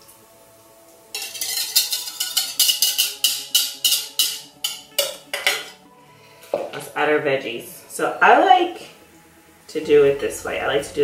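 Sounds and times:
whisk scraping and knocking bowl: 1.2 - 5.7.

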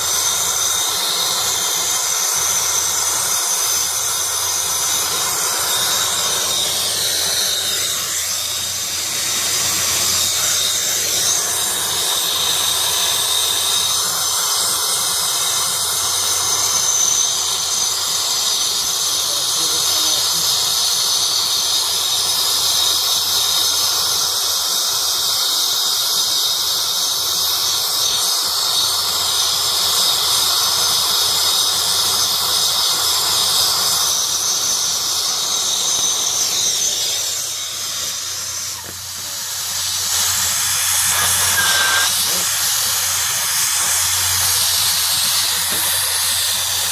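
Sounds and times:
torch flame hissing: 0.0 - 46.9
faint high whistle: 34.8 - 46.6.

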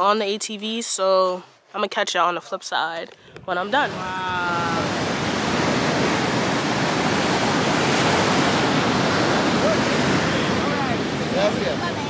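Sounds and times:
ocean waves breaking: 3.4 - 12.0.

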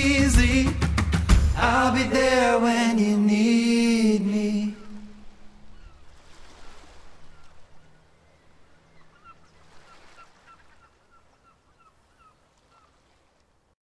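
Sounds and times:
soft surf: 0.0 - 13.7
bird calling falling notes: 4.6 - 13.0.

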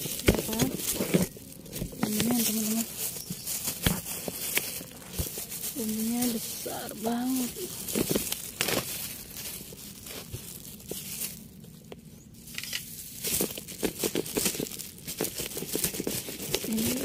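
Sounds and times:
roots and leaves tearing: 0.0 - 17.0.

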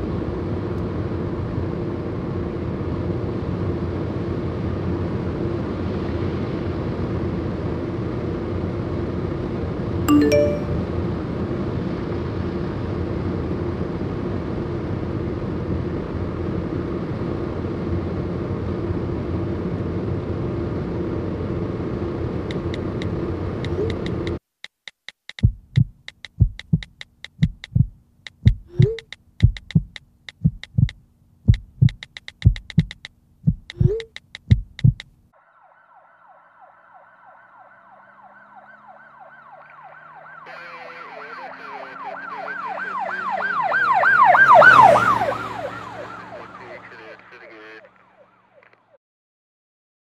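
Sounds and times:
heartbeat thumps: 25.4 - 35.1
emergency siren yelp: 35.4 - 47.5.

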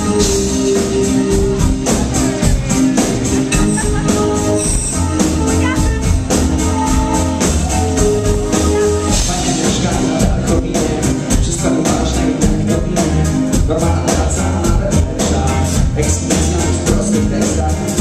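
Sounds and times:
live rock band playing: 0.0 - 18.0
person singing into microphone: 8.0 - 18.0.

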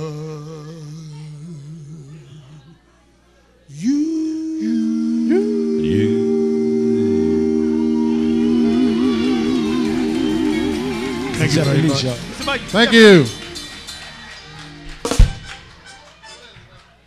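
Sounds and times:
male vocal group singing harmony: 3.8 - 12.3.

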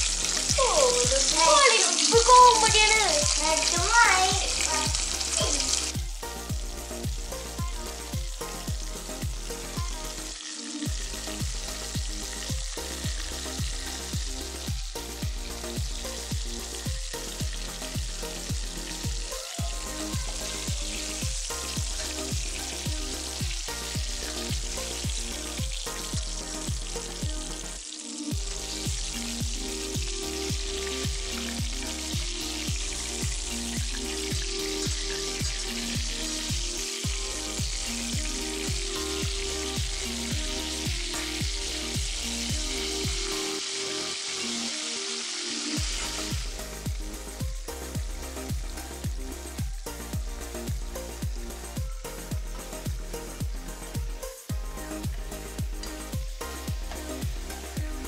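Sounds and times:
rhythmic pulsing beat: 0.0 - 44.4, 45.8 - 58.0
chicken sizzling in oil: 0.0 - 52.3.

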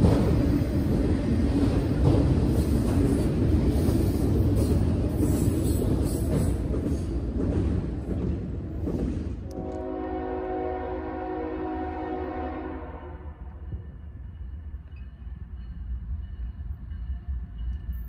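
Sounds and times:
steel wheels clattering on rail: 0.0 - 10.6
freight train rolling past: 0.0 - 18.0.

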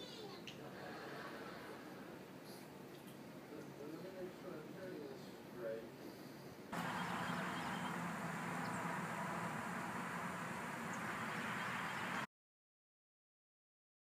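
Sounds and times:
low hum: 6.8 - 12.3
steady rushing noise: 6.8 - 12.3.

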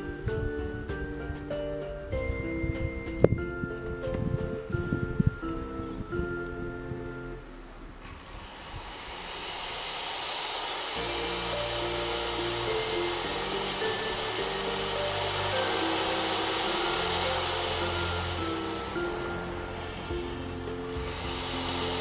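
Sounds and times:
background music: 0.0 - 7.7, 10.9 - 22.0
electric drill boring metal: 8.0 - 22.0.

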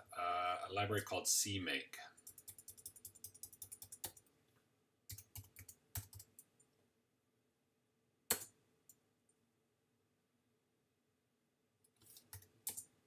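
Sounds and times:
computer keyboard typing: 2.2 - 4.2, 5.1 - 6.5, 12.0 - 12.9.

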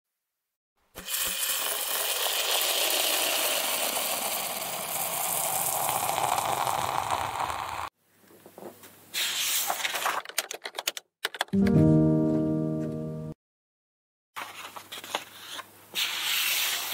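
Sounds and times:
marker scratching on paper: 15.1 - 16.9.

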